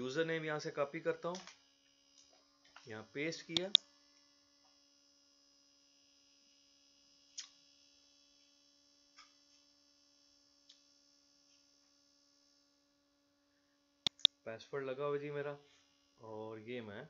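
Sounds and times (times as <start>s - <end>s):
faint electrical hum: 0.0s - 17.0s
faint short clicks: 3.5s - 3.8s, 14.1s - 14.3s.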